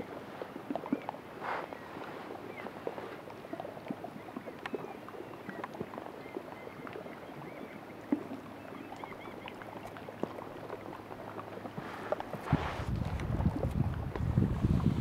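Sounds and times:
kayak hull nudging ice: 11.8s - 14.8s.

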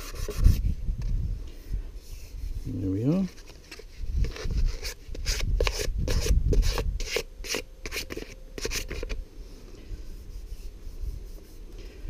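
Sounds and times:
sandpaper rubbing on wood: 0.0s - 0.6s.

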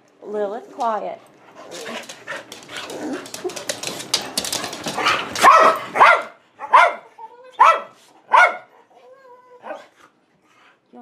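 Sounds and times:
shuffling with clicks and rattles: 1.7s - 6.0s
dog barking: 5.4s - 8.8s, 9.6s - 9.9s.

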